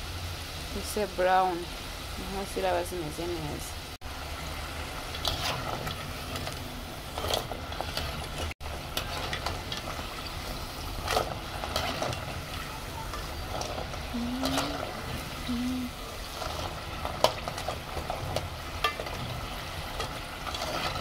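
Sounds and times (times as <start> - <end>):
food deep-frying in oil: 0.0 - 21.0
metal spoon scraping a pot: 5.2 - 10.4, 20.4 - 21.0.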